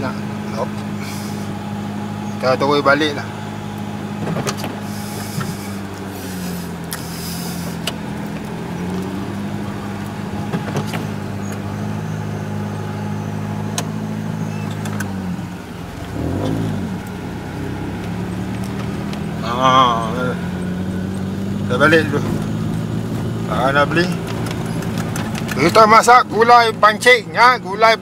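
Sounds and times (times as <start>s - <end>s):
car engine running: 0.0s - 28.0s.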